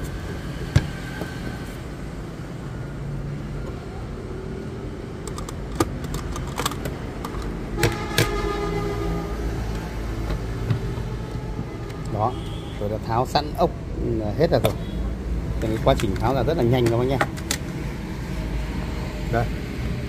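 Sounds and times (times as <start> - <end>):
clicks and knocks of cassette player: 15.6 - 17.7.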